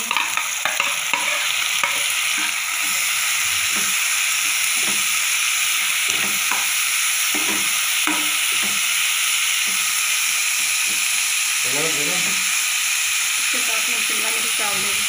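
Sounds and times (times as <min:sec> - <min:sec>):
spoon scraping a pan: 0:00.0 - 0:09.0
vegetables sizzling in oil: 0:00.0 - 0:15.0.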